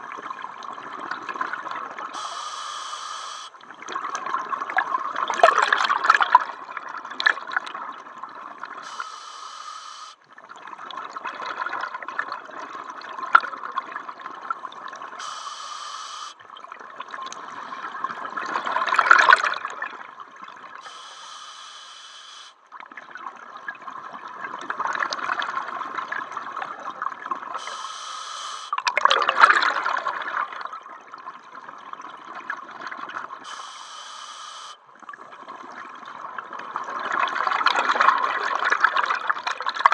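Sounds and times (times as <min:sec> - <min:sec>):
exhaled bubbles gurgling: 0:00.0 - 0:39.9
regulator inhale hiss: 0:02.2 - 0:03.6, 0:08.8 - 0:10.2, 0:15.2 - 0:16.4, 0:20.8 - 0:22.6, 0:27.6 - 0:28.8, 0:33.4 - 0:34.8.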